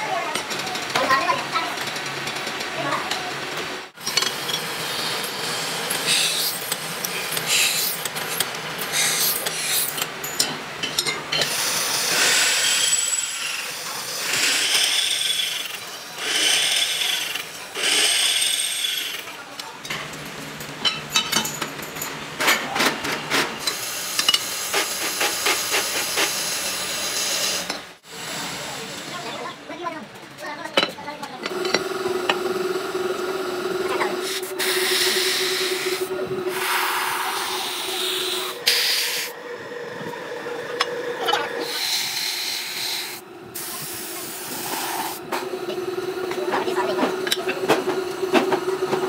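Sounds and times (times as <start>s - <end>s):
drill bit grinding through metal: 11.4s - 19.3s, 31.4s - 43.2s.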